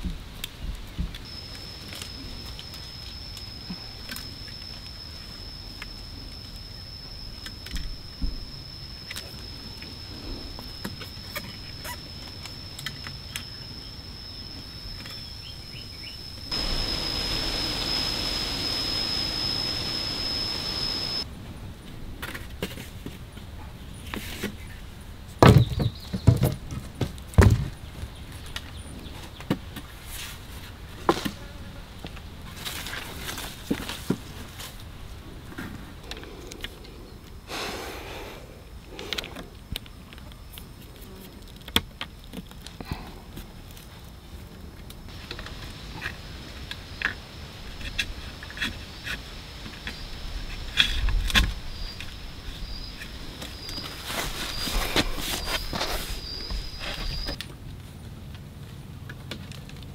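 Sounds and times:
high insect buzz: 1.2 - 21.2, 45.1 - 57.4.

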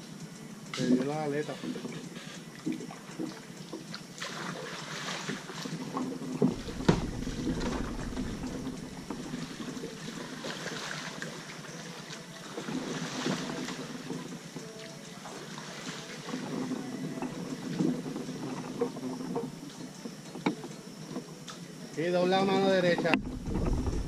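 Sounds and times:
paddle strokes splashing: 1.6 - 21.3
sharp knocks: 6.5 - 9.6
wind rumble on microphone: 6.5 - 9.9, 23.1 - 24.0.

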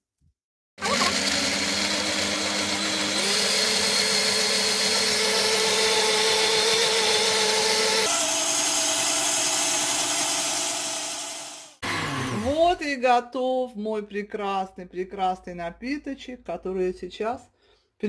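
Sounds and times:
blender motor whine: 0.8 - 12.8.

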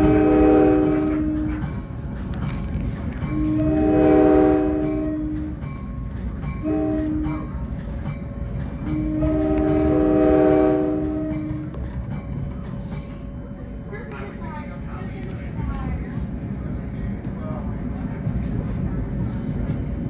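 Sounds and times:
train air horn blasts: 0.0 - 1.6, 3.3 - 5.6, 6.6 - 7.5, 8.9 - 11.6
moving train rumble: 0.0 - 20.0.

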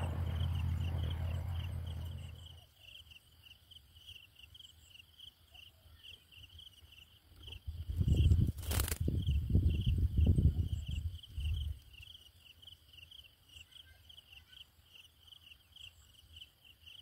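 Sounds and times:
low rumbling noise: 0.0 - 2.6
insects chirping: 0.0 - 17.0
brief crackle: 8.3 - 9.1.

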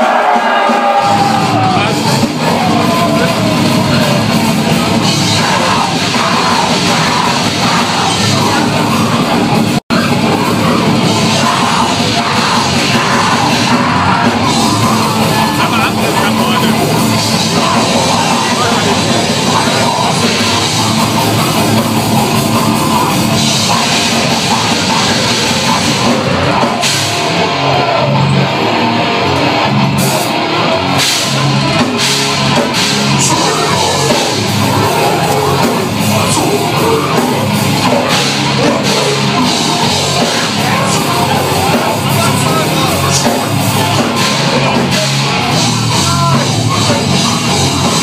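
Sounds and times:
live death metal band playing: 0.0 - 48.0.

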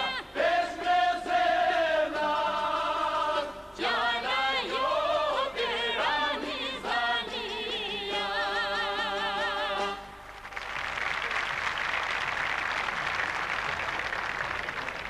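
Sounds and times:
group singing held chord: 0.0 - 10.1
audience applause: 10.3 - 15.0.

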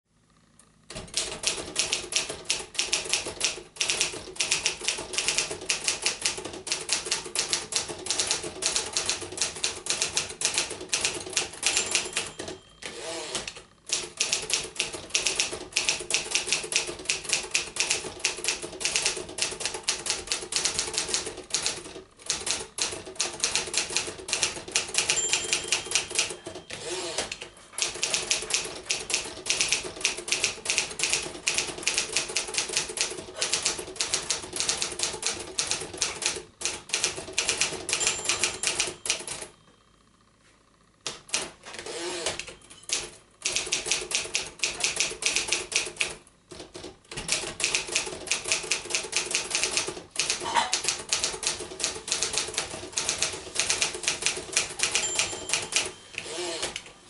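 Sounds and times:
typewriter keys clacking: 0.9 - 12.6, 13.4 - 39.5, 42.3 - 56.8
typewriter bell ringing: 10.0 - 13.3, 24.8 - 29.8, 37.4 - 39.7, 42.4 - 43.2, 53.8 - 56.7.

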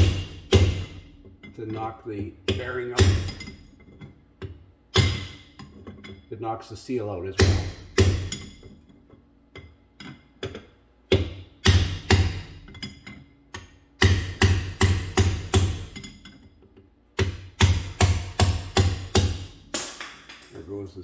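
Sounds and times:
hammer striking steel punch: 0.0 - 1.2, 2.4 - 3.6, 4.4 - 5.6, 7.4 - 8.6, 10.4 - 12.8, 13.5 - 16.2, 17.2 - 20.4.

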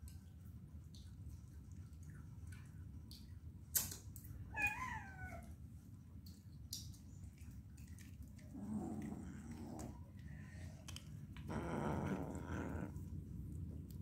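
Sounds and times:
faint light ticks and taps: 0.0 - 4.3, 6.2 - 11.5.

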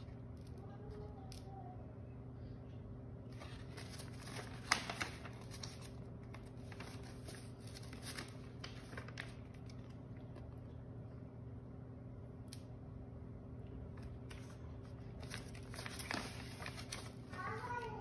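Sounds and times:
faint steady hum: 0.0 - 18.0
paper pages rustling and crackling: 3.3 - 10.5, 14.0 - 17.8.

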